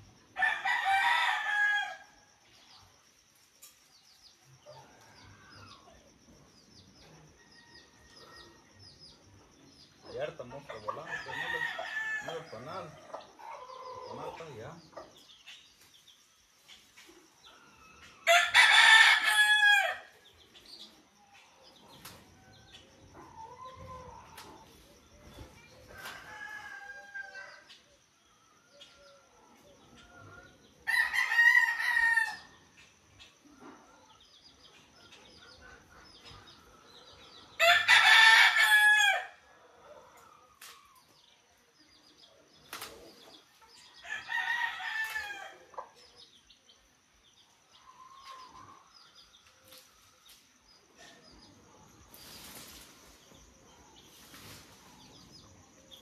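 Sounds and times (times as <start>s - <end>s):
rooster crowing: 0.4s - 2.2s, 11.0s - 12.6s, 18.2s - 20.1s, 26.0s - 27.7s, 30.8s - 32.6s, 37.6s - 39.4s, 44.0s - 45.6s.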